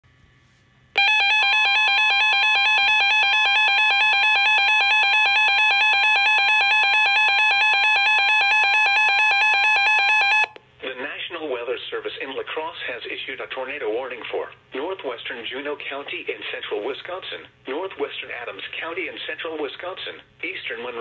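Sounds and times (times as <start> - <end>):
warbling electronic alarm tone: 1.0 - 10.6.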